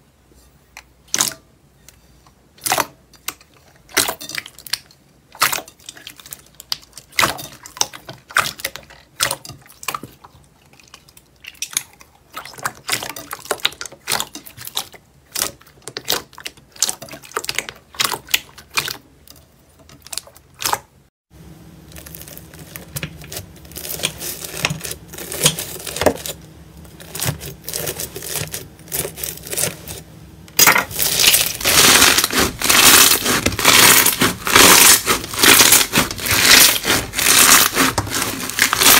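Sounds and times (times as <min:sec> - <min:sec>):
foam-bead slime crunching: 0:21.8 - 0:38.9
slime crackling: 0:21.8 - 0:38.9.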